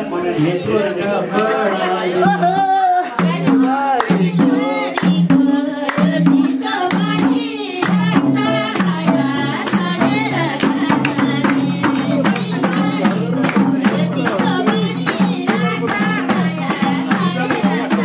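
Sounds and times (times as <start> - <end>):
man singing through speaker: 0.0 - 5.0, 12.0 - 18.0
even drum beat: 2.0 - 18.0
hand clapping: 3.0 - 6.2, 6.8 - 8.1, 10.6 - 18.0.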